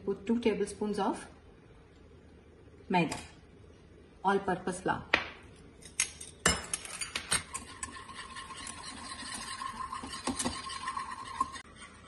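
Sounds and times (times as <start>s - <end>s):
whisk clinking and scraping pan: 6.8s - 12.0s.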